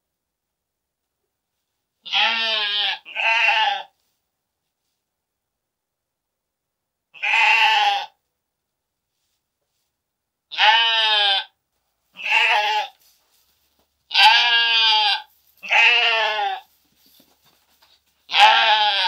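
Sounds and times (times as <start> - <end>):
sheep bleating: 2.0 - 3.9, 7.2 - 8.2, 10.5 - 11.5, 12.2 - 13.0, 14.1 - 16.7, 18.3 - 19.0.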